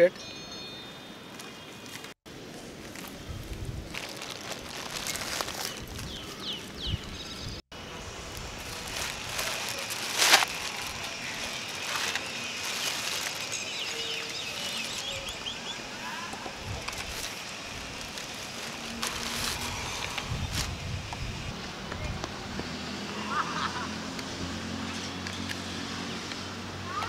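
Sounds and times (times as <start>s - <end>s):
plastic bag rustling: 2.8s - 6.8s, 8.2s - 15.6s, 16.6s - 20.8s.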